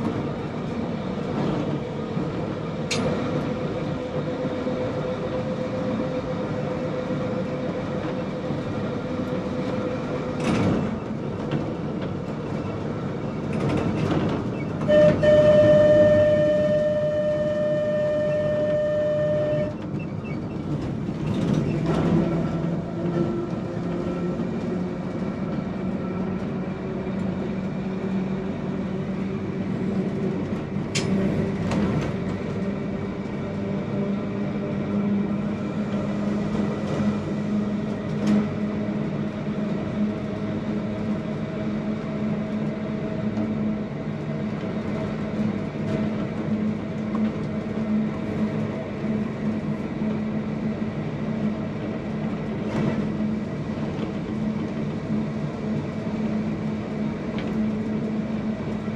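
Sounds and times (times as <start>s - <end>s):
tram motor hum: 0.0s - 58.9s.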